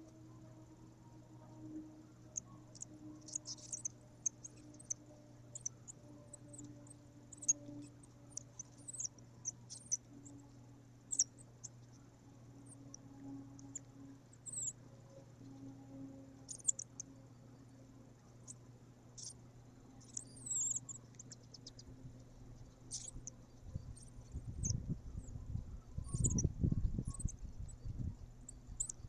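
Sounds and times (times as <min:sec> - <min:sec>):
steady low hum: 0:00.0 - 0:29.0
chicks squeaking peeps: 0:02.7 - 0:05.0, 0:19.2 - 0:19.4, 0:20.0 - 0:21.9, 0:22.6 - 0:28.0.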